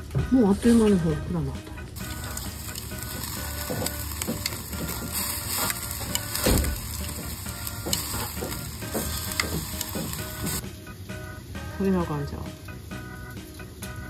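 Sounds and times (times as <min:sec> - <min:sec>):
metal tongs clicking on grill grate: 0:02.0 - 0:10.6.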